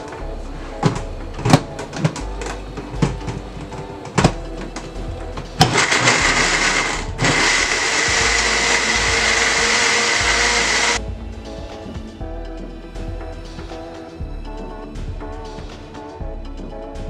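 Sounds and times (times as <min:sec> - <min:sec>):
blender blending: 0:05.6 - 0:11.0.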